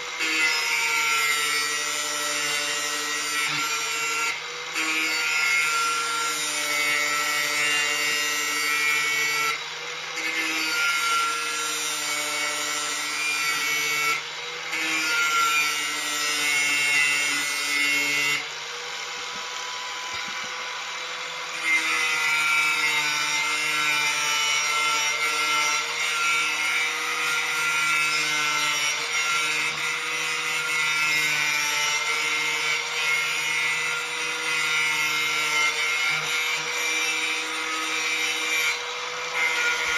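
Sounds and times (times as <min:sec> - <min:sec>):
angle grinder grinding steel: 0:00.0 - 0:39.9.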